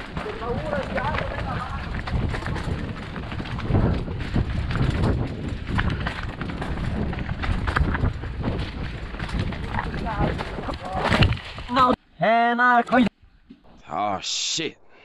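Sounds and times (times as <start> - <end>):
bike rattling over rough trail: 0.0 - 11.9
wind rumble on microphone: 0.0 - 11.9.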